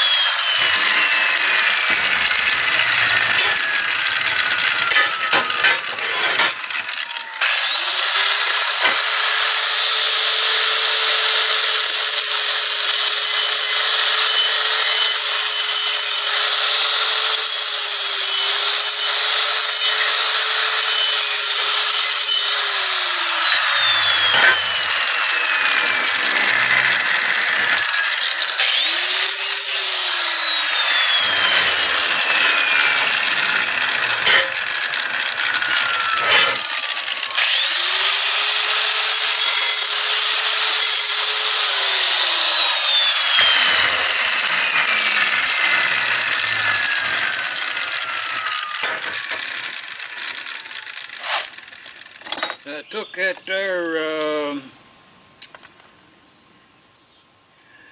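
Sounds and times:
angle grinder grinding steel: 0.0 - 54.7
grinder winding down whine: 0.0 - 54.7.

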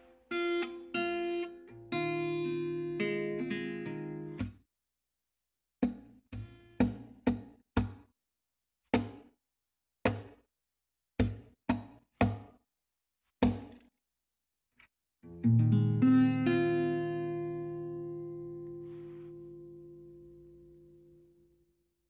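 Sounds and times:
strummed acoustic guitar chords: 0.3 - 4.4, 15.3 - 21.1.

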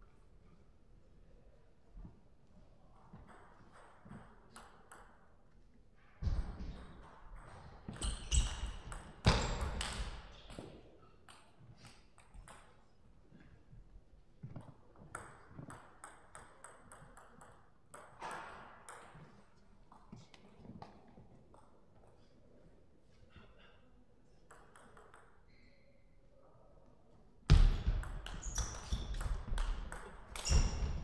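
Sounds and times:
table tennis ball hits: 27.5 - 31.0.

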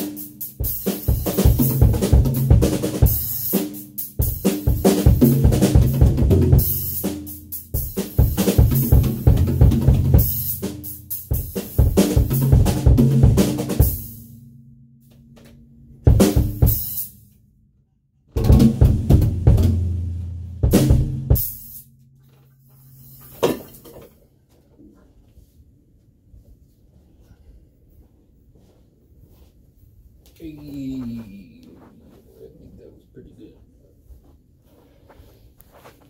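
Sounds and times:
drum fills: 0.0 - 14.3, 16.1 - 17.1, 18.4 - 21.9.

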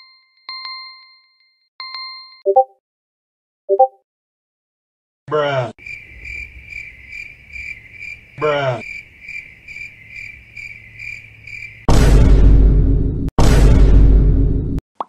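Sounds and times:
cricket chirping: 5.8 - 11.9.

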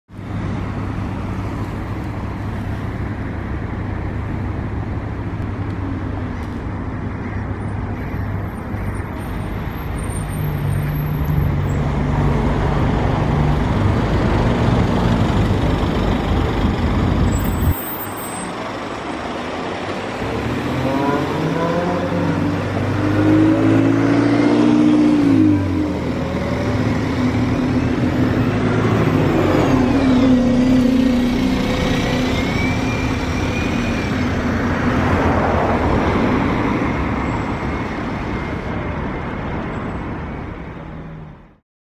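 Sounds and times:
road traffic: 0.1 - 41.6
diesel bus pulling away: 9.2 - 38.7
bus engine running: 9.7 - 20.6.

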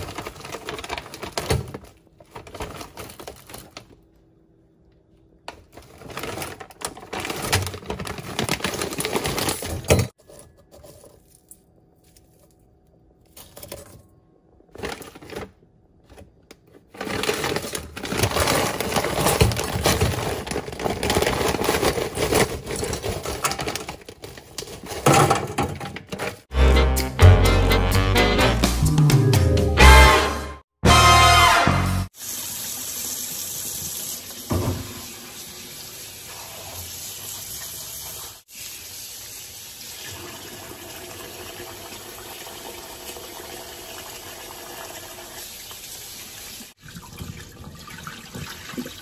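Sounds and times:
plastic bag crinkling: 0.0 - 4.1, 5.6 - 9.9, 16.9 - 24.9
frozen crawfish rattling into steel pot: 5.5 - 11.4, 16.9 - 26.0.

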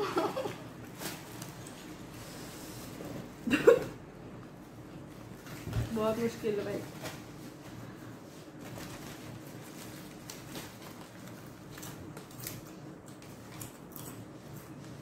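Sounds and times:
paper wrapper rustling: 8.4 - 13.6.

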